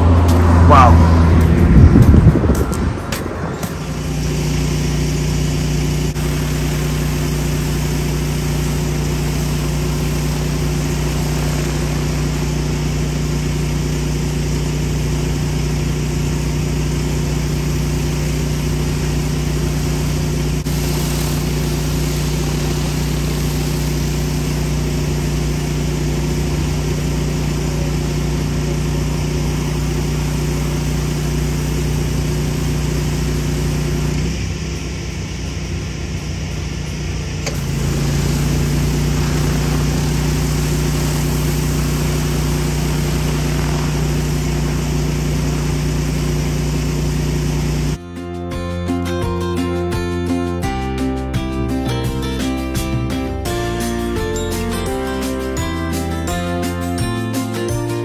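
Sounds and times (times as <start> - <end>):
pressure washer engine running: 0.0 - 48.0
even hiss: 20.6 - 27.3, 30.2 - 47.4.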